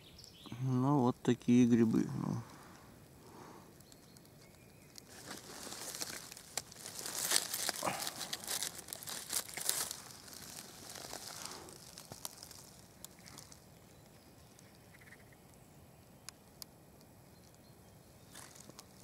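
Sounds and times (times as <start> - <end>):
dry leaves rustling and crackling: 3.8 - 14.6, 18.2 - 19.0.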